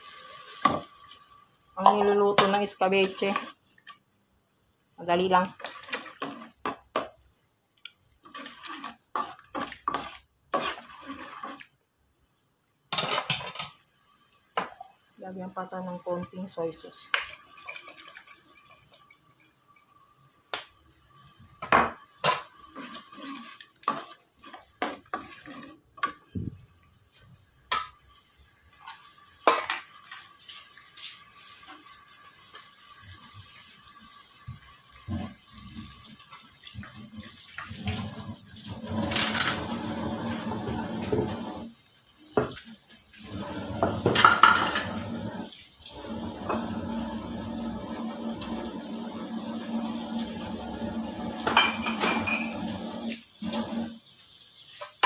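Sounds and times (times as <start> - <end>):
running water: 30.0 - 55.0.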